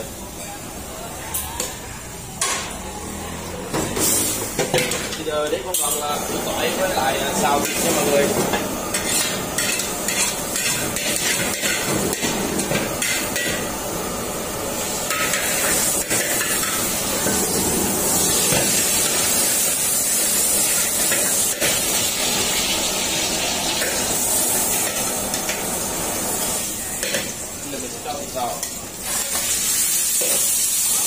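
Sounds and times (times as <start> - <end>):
ladle scraping a wok: 8.9 - 13.6.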